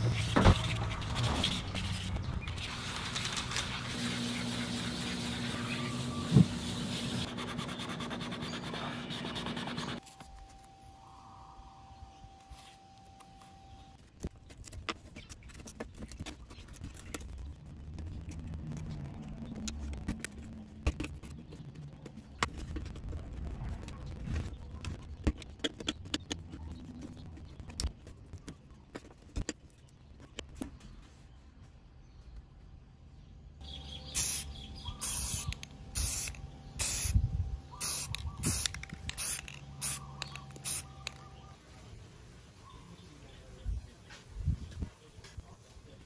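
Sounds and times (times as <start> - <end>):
razor blade scraping tape: 37.8 - 41.3.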